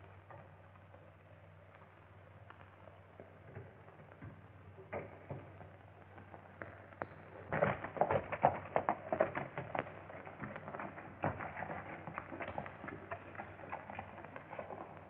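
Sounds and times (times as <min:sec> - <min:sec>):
film soundtrack hiss: 0:00.0 - 0:15.0
horse hooves clattering: 0:04.9 - 0:15.0.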